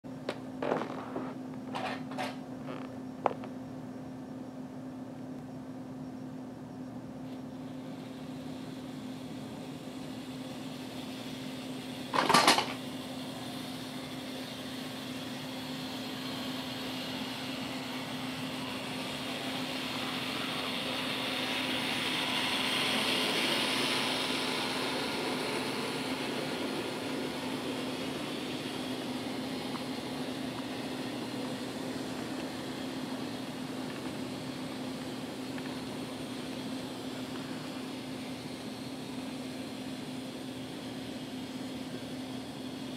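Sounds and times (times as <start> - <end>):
steady hum: 0.1 - 42.9
model train whirring on track: 7.2 - 42.9.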